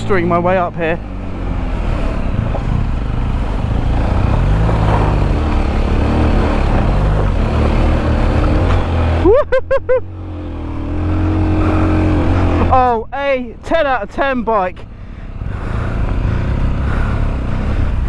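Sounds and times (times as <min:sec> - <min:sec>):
motorcycle engine revving: 0:00.0 - 0:13.4, 0:15.1 - 0:18.0
wheel throwing dirt: 0:04.0 - 0:05.6.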